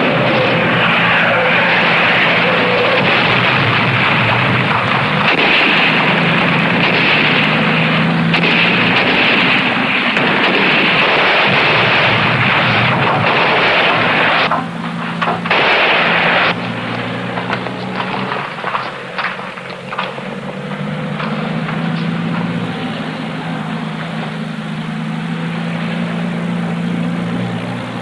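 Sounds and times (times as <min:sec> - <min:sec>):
gunfire: 0:00.0 - 0:24.9
jeep engines running hard: 0:00.0 - 0:28.0.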